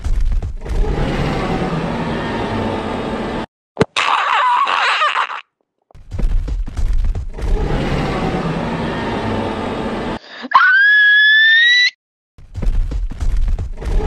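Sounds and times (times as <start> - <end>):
loud distorted rumbling noise: 0.0 - 3.5, 6.7 - 10.2
high wavering scream: 10.5 - 12.0.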